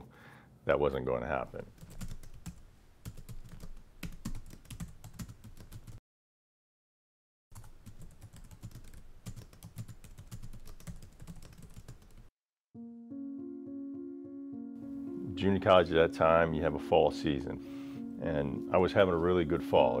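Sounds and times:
rapid keyboard typing: 0:01.8 - 0:06.0, 0:07.6 - 0:12.3.

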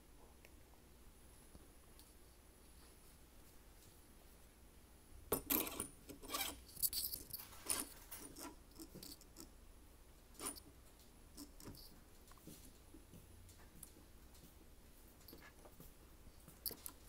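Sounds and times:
metal clinking and rattling: 0:05.3 - 0:09.4, 0:16.5 - 0:17.0.

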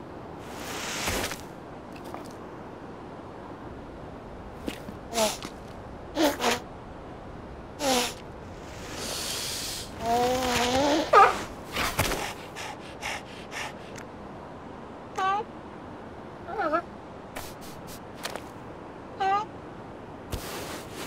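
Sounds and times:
long breathy intake: 0:08.0 - 0:10.0.

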